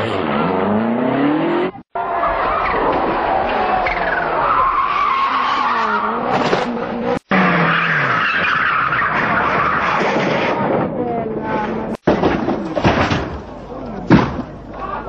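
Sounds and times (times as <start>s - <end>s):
rally car engines revving: 0.0s - 12.0s
tyres skidding: 0.0s - 15.0s.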